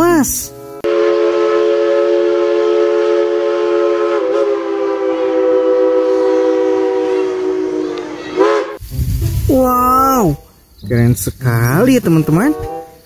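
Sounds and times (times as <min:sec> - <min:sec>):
steam locomotive chime whistle: 0:00.8 - 0:08.8, 0:12.2 - 0:13.0.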